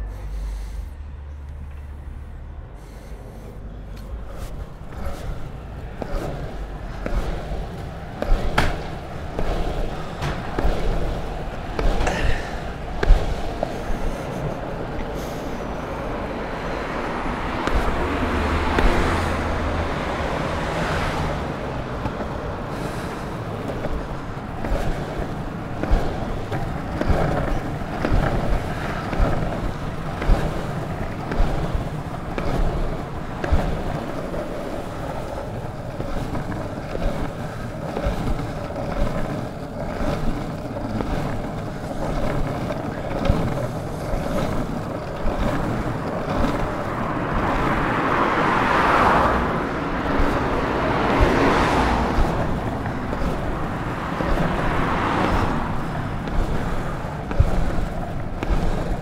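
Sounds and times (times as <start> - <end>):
longboard wheels rumbling on pavement: 0.0 - 59.0
sharp knocks of wheels: 3.9 - 59.0
rushing sound: 4.1 - 33.9.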